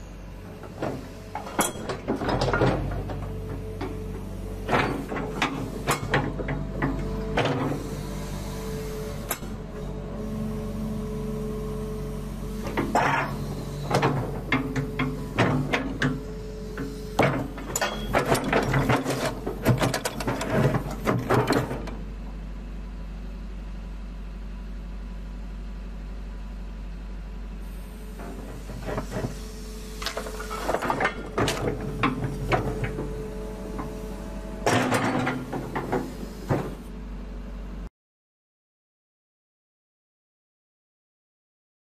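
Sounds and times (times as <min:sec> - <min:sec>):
excavator engine humming: 0:00.0 - 0:37.9
excavator linkage clattering: 0:16.8 - 0:22.0, 0:30.0 - 0:33.2.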